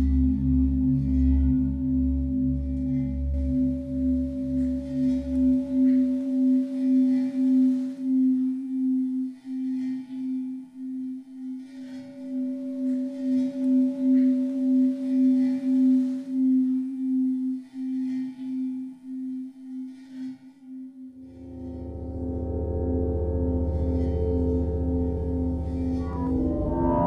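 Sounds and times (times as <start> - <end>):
metal cylinder humming: 21.2 - 27.0
deep low tone: 21.4 - 27.0.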